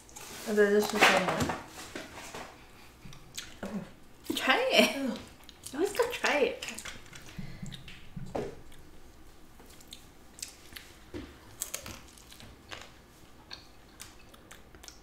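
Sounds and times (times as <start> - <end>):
people biting and chewing: 9.7 - 15.0.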